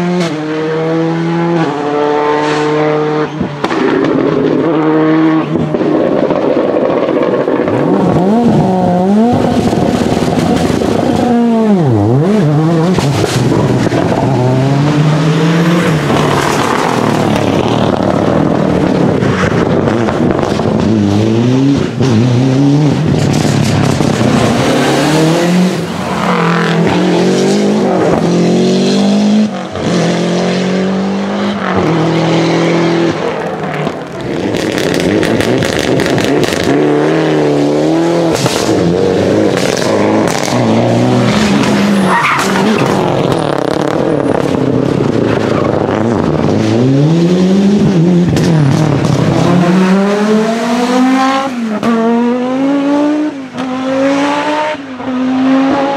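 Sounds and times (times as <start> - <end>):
rally car engines revving: 0.0 - 55.9
exhaust pops and backfire bangs: 3.5 - 4.6, 23.0 - 25.1, 38.2 - 46.6.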